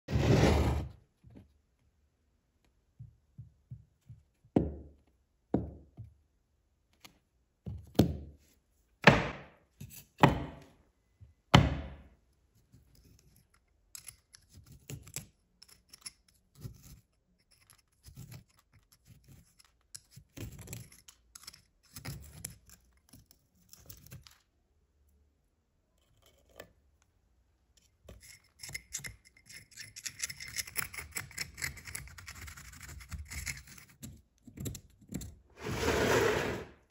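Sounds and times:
metal pick scraping wood: 35.6s - 36.8s.

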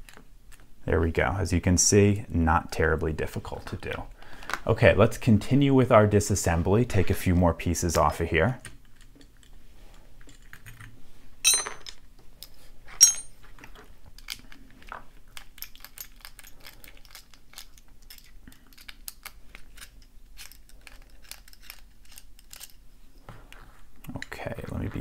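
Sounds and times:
small metal parts clinking: 10.3s - 12.0s, 13.0s - 13.4s, 15.3s - 22.8s.

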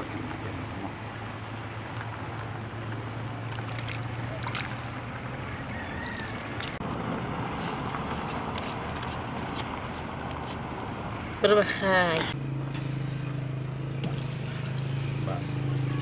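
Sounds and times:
raw chicken squelching in metal bowl: 8.1s - 10.8s.

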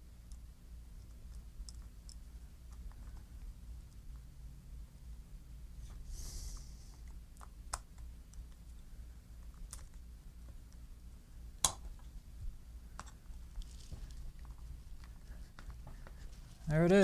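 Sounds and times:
soft rustle: 13.3s - 17.0s.

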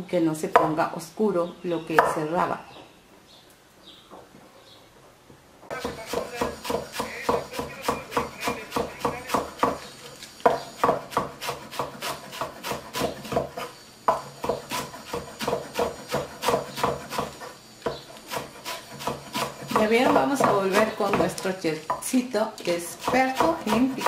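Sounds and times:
knife chopping on wooden board: 2.0s - 2.2s, 5.7s - 22.0s, 22.9s - 24.0s.

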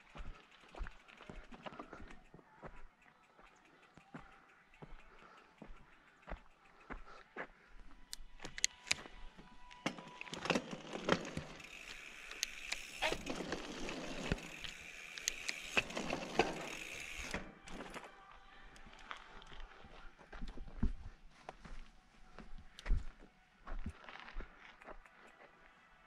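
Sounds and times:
scattered clicks: 0.0s - 18.1s, 23.8s - 25.6s.

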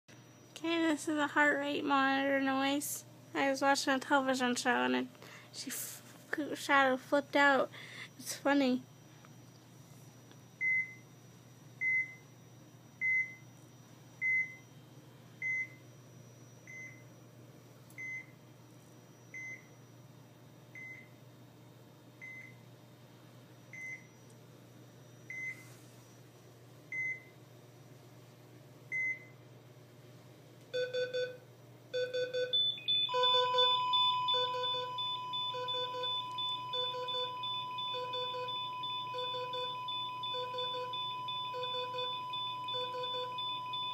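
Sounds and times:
high monitor beep: 30.8s - 31.4s, 32.0s - 43.9s
continuous steady tone: 30.8s - 43.9s
fast low multi-tone beeping: 32.0s - 43.9s.

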